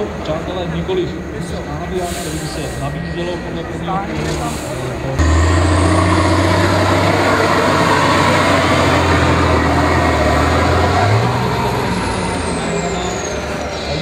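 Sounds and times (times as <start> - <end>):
diesel engine droning: 5.0 - 14.0.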